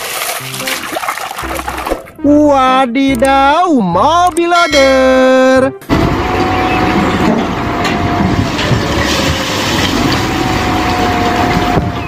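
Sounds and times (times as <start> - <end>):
diesel engine under load: 5.8 - 12.0
rubble clattering: 7.0 - 12.0.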